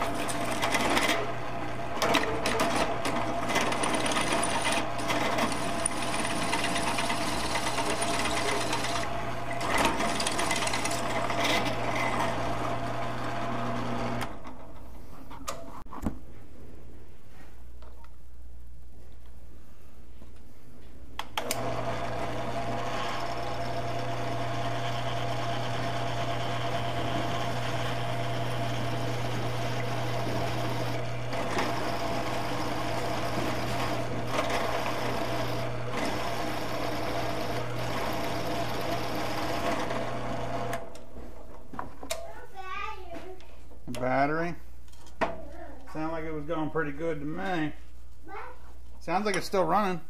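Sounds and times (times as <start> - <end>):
milling machine humming and whining: 21.5 - 40.8.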